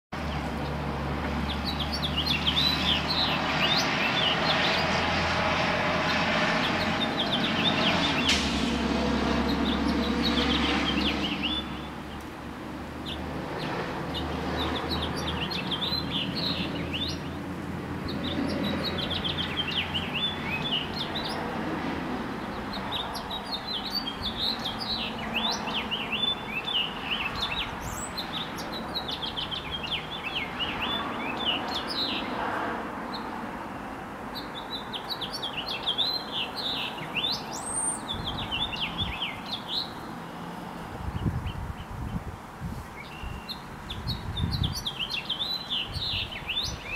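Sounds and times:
finch singing: 13.0s - 17.4s, 18.1s - 21.4s, 22.4s - 32.3s, 34.4s - 40.0s, 43.0s - 46.9s.

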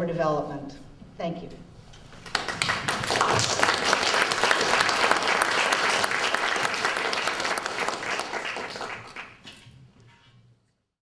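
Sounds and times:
audience applauding: 2.2s - 9.4s.

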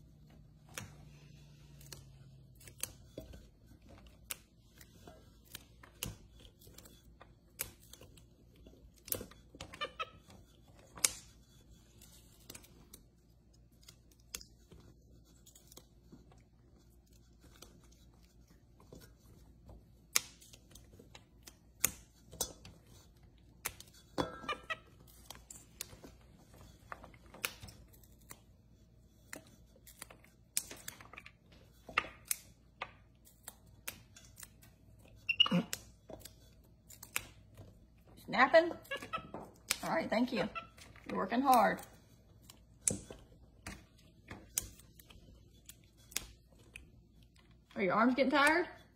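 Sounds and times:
green beans snapping: 0.6s - 3.1s, 31.8s - 34.7s, 35.6s - 37.6s, 44.4s - 46.9s.

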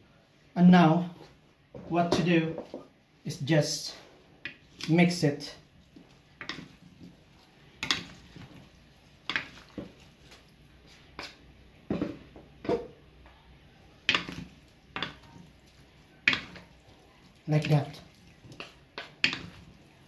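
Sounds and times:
wooden servers clacking on plate: 18.6s - 19.8s.

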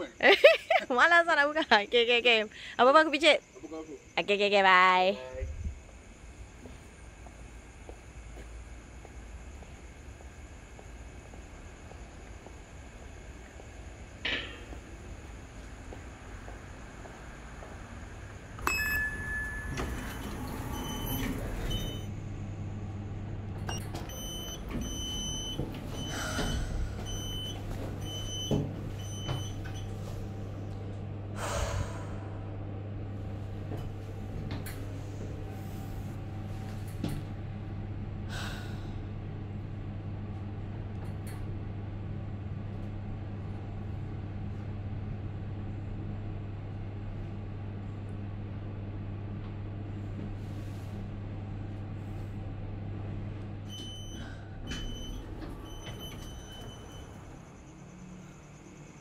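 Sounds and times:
lift machinery humming: 5.5s - 59.0s
sliding lift doors closing: 17.4s - 22.3s, 23.5s - 30.7s, 33.2s - 37.3s, 53.3s - 57.7s.

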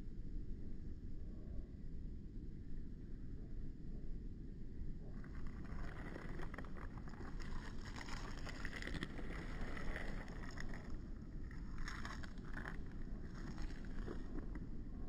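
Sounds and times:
low steady rumble: 0.0s - 15.0s
hands scraping over gritty dirt: 6.0s - 14.5s.

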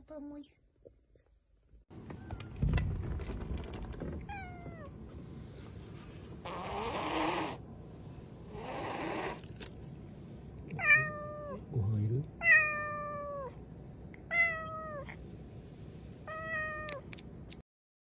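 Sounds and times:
cat hissing: 6.4s - 7.6s, 8.4s - 9.5s
cat meowing: 10.7s - 11.6s, 12.4s - 13.6s, 14.3s - 15.2s, 16.3s - 17.1s.

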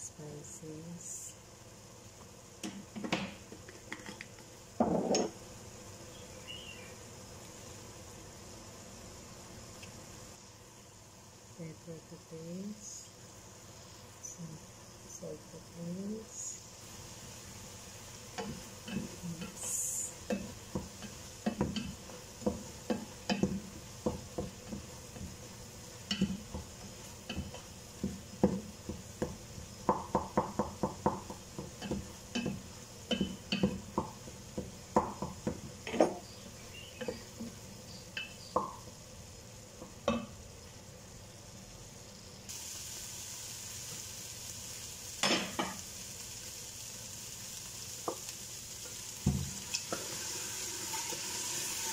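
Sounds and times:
meat sizzling: 13.1s - 51.9s
spatula knocking against pot: 20.3s - 25.3s, 26.1s - 36.2s.

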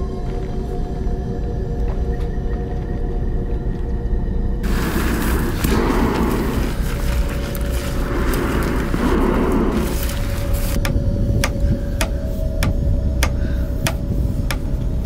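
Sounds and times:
low rumbling drone: 0.0s - 15.0s
noisy rush: 4.6s - 15.0s.

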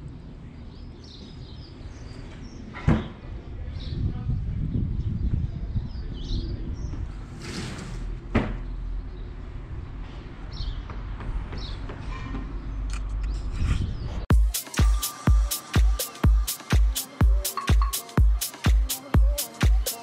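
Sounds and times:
wind rumbling on microphone: 1.9s - 11.6s, 13.0s - 14.3s.

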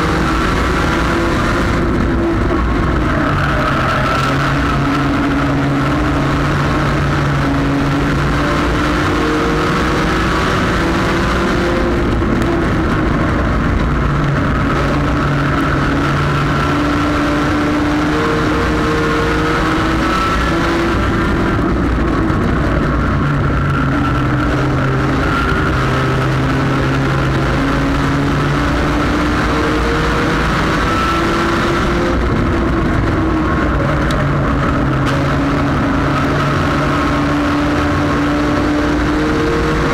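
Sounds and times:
race car engine: 0.0s - 39.9s
wind and road noise: 0.0s - 39.9s.

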